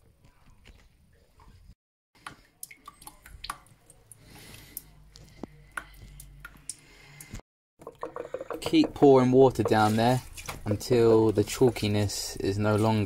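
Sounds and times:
water dripping into plastic bucket: 2.2s - 10.7s.

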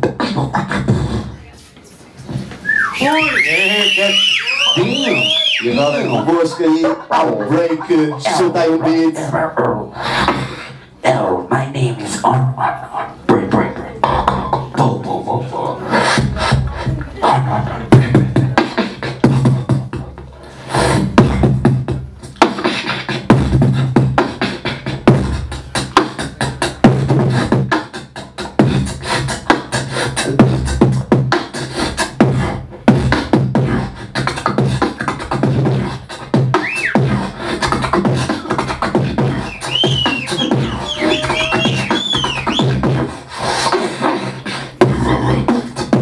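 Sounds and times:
person beatboxing: 0.0s - 1.6s, 2.7s - 46.0s
whistle-like pitch glides: 2.6s - 6.4s, 36.6s - 37.0s, 39.4s - 42.8s.

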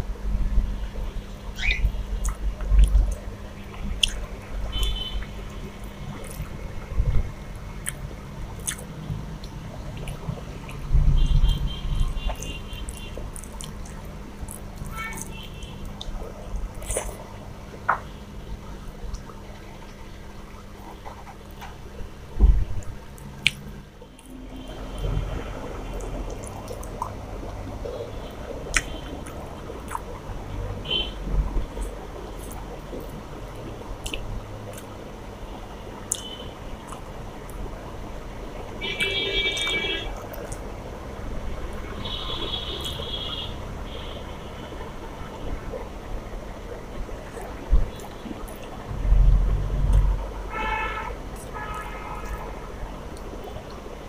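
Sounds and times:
low thumps: 48.9s - 50.4s.

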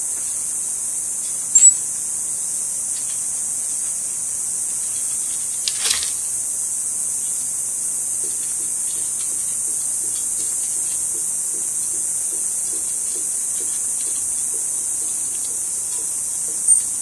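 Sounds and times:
high-pitched insect chorus: 0.0s - 17.0s
sharp high chirp: 1.6s - 1.8s.

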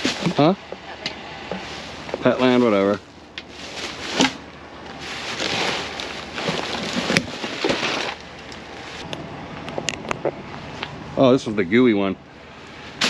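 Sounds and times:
plastic bags and cardboard rustling: 0.0s - 0.6s, 1.4s - 9.0s.

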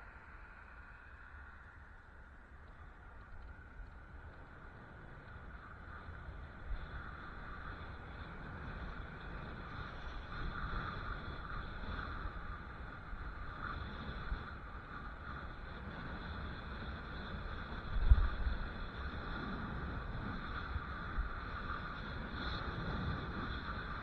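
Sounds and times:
steady whirring hum: 0.0s - 24.0s
wind rumbling on microphone: 0.0s - 24.0s.

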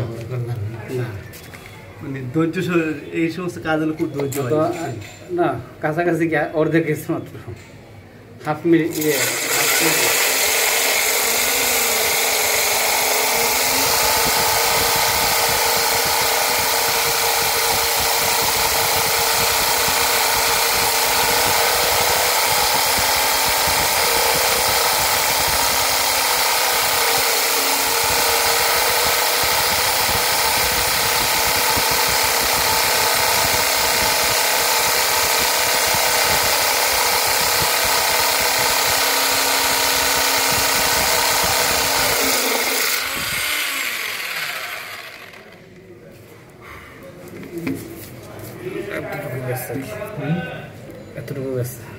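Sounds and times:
drill bit grinding stone: 8.9s - 45.6s
drill motor whining: 8.9s - 45.7s.

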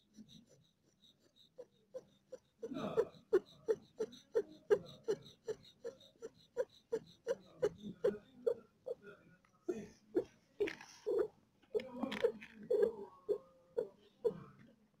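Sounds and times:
cat panting: 0.0s - 9.0s.

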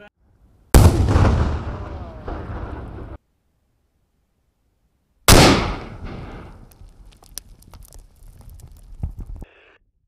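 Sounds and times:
explosion rumble: 0.8s - 3.2s, 5.3s - 7.0s
debris raining down: 5.8s - 9.4s.

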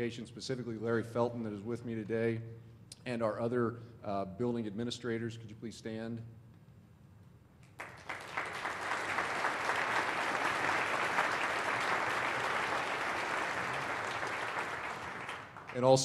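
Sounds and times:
audience applauding: 7.8s - 16.0s.

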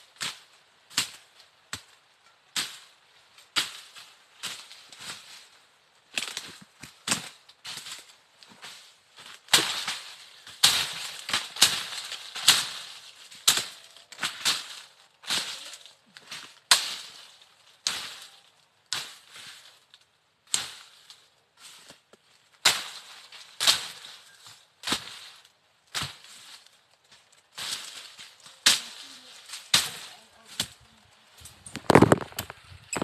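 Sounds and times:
rustle of cut vegetation: 0.0s - 33.0s
machete chopping brush: 3.6s - 5.2s, 8.6s - 19.6s, 22.6s - 24.2s, 24.8s - 26.5s, 27.5s - 30.9s.

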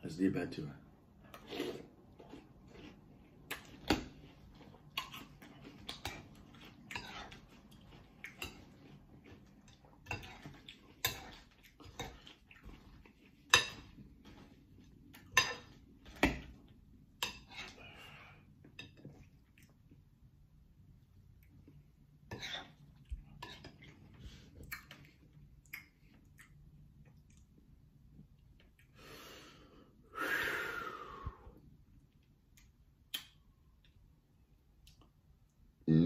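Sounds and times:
cereal crunching and chewing: 1.3s - 13.2s.

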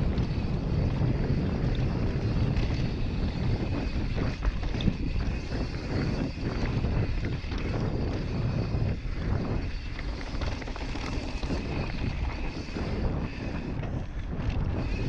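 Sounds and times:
bike rattling over stones: 0.0s - 15.0s
bike tyres on dirt: 0.0s - 15.0s
wind buffeting the microphone: 0.0s - 15.0s.

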